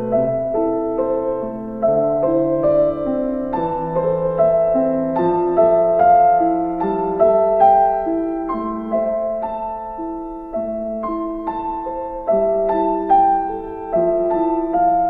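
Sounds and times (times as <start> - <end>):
solo piano music: 0.0 - 15.0.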